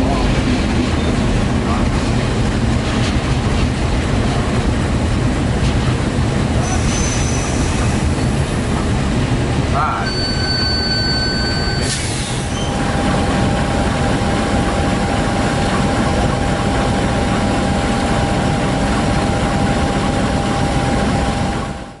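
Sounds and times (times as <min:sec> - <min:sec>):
steady whine: 0:00.0 - 0:22.0
train high squeal: 0:06.6 - 0:08.2, 0:10.0 - 0:13.3
locomotive engine idling rumble: 0:12.1 - 0:21.9.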